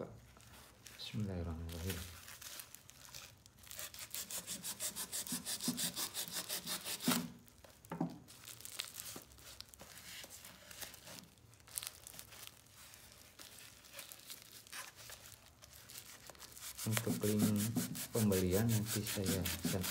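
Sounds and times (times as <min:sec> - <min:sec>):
plastic crinkling and tearing: 0:00.2 - 0:04.6, 0:06.5 - 0:17.4
knife sawing through plastic: 0:03.7 - 0:07.3, 0:16.5 - 0:19.9
small knocks: 0:07.8 - 0:08.3.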